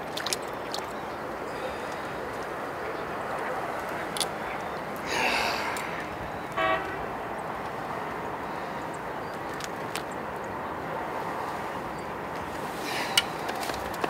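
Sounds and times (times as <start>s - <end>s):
outdoor background noise: 0.0s - 14.0s
short honk: 6.6s - 7.0s.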